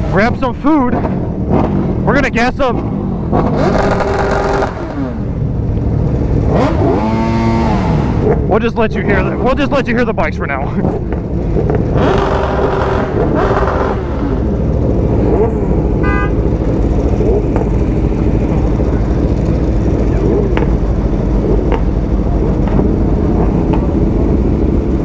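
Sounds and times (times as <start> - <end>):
motorbike engines rumbling: 0.0 - 25.0
horn toot: 15.9 - 16.6.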